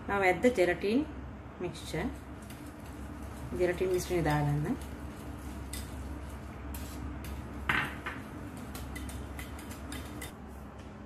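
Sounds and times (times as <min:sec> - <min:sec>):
whisk scraping glass bowl: 0:02.1 - 0:10.4.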